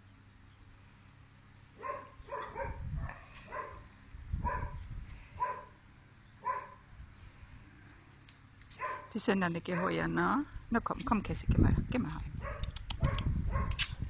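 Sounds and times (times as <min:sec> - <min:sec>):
small dog yapping: 0:01.8 - 0:03.8.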